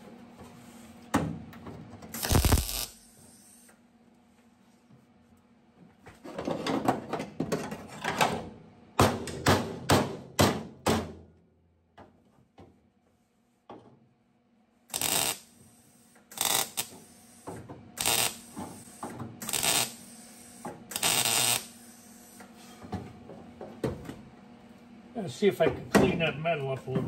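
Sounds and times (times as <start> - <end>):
short harsh burst: 2.2 - 3.0.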